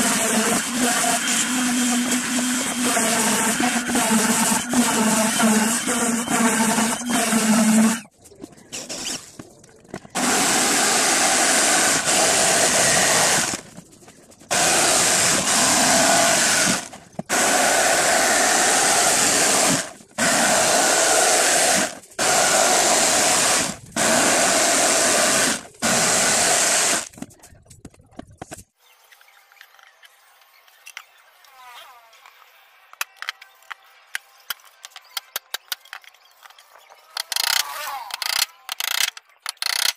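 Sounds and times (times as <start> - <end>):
electric power tool running: 0.0 - 8.0, 10.2 - 13.6, 14.5 - 27.1.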